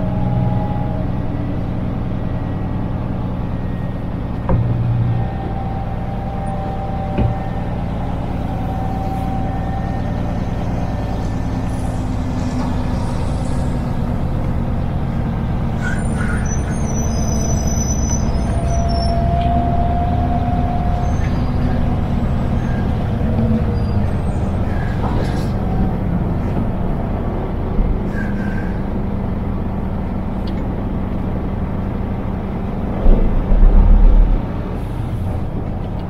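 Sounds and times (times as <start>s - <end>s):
road noise: 0.0s - 36.0s
truck diesel engine drone: 0.0s - 36.0s.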